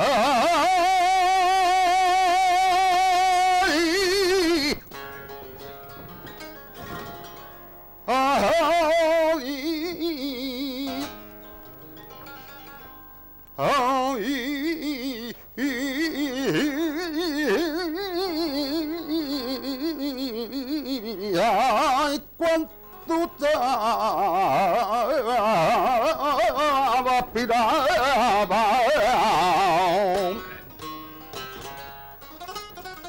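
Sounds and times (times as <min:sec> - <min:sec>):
man singing flamenco: 0:00.0 - 0:05.0, 0:08.0 - 0:11.5, 0:13.6 - 0:30.8
acoustic guitar: 0:00.0 - 0:33.0.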